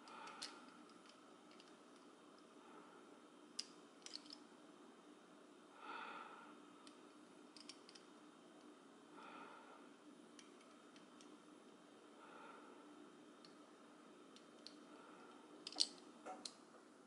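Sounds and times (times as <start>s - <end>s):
metal puzzle pieces clicking: 0.1s - 1.8s, 3.6s - 4.4s, 7.6s - 8.0s, 15.6s - 16.6s
soft breath: 2.5s - 3.3s, 5.7s - 6.7s, 9.1s - 10.0s, 12.1s - 13.2s, 14.8s - 15.6s.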